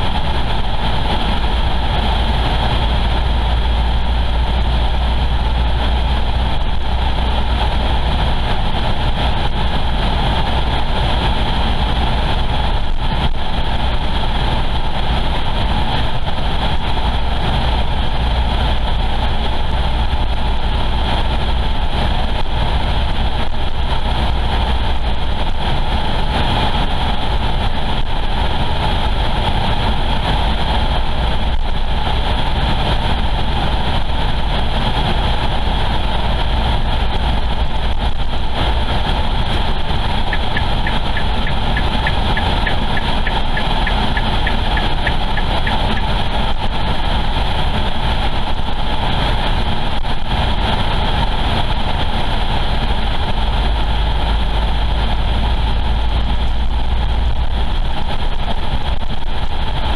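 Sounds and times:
car driving heard from inside: 0.0s - 59.9s.

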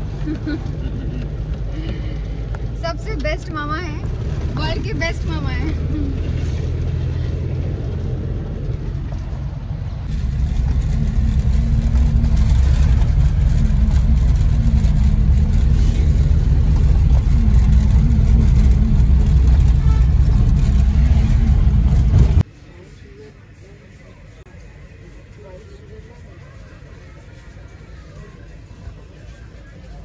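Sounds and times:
car engine and road noise inside cabin: 0.0s - 22.5s.

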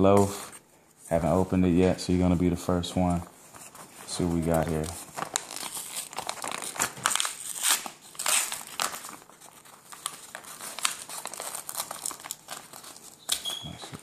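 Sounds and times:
paper envelope tearing: 4.1s - 13.5s.

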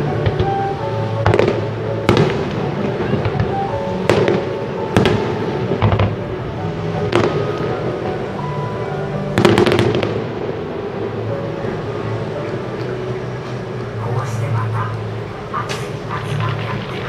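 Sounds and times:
firework crackle: 0.0s - 8.5s, 9.2s - 10.8s, 15.8s - 17.0s
music playing: 0.0s - 17.0s
firework bangs with echo: 0.1s - 6.4s, 7.0s - 7.9s, 9.3s - 10.8s.

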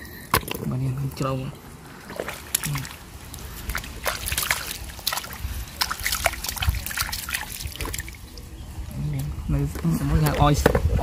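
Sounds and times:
water trickling and dripping: 0.4s - 9.6s
splashing in muddy water: 2.0s - 8.5s.

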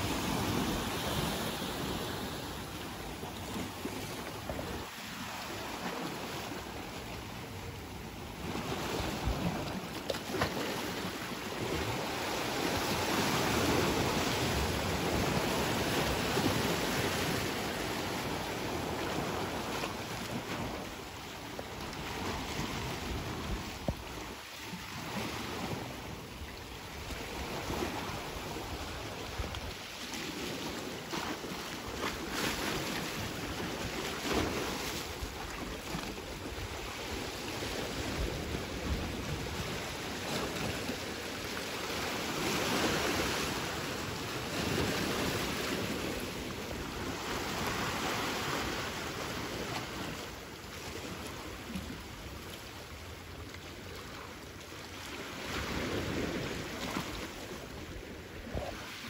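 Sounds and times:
sea waves washing: 0.0s - 59.0s
wind rumbling on microphone: 55.4s - 59.0s.

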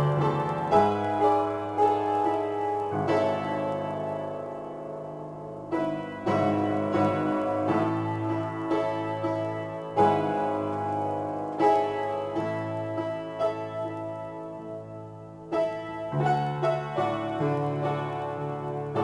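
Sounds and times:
piano chords ringing: 0.0s - 19.0s.

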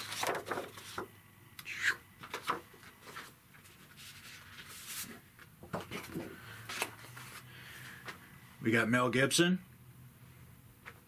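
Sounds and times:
paper sheets rustling and sliding: 0.0s - 1.1s, 2.2s - 8.0s.

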